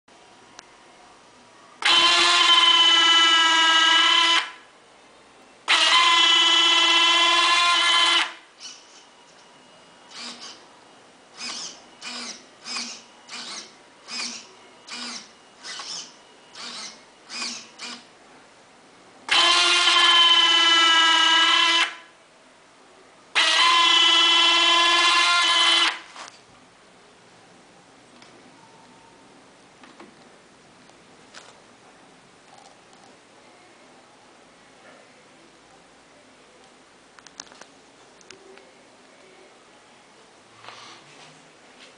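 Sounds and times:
short servo buzzes: 10.1 - 10.6, 11.4 - 18.0.

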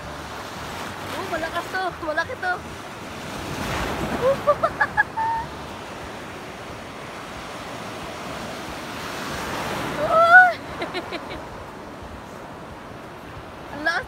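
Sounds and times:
sea surf breaking: 0.0 - 14.0
wind buffeting microphone: 0.0 - 14.0
woman exclaiming: 10.0 - 10.6.

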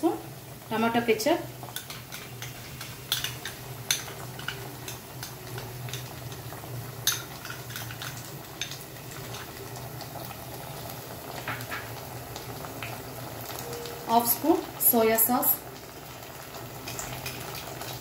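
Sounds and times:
sauce sizzling: 0.0 - 18.0
spoon scraping a pan: 1.7 - 6.1.

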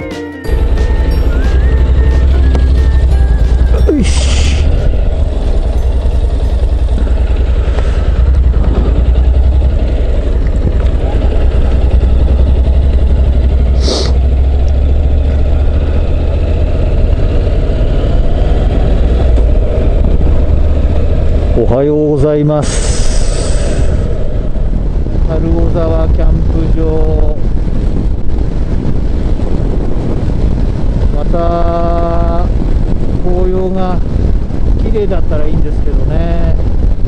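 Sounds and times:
motorcycle engine running: 0.0 - 37.0
wind rush over microphone: 1.1 - 37.0
short hiss: 13.8 - 14.2, 22.6 - 23.9.

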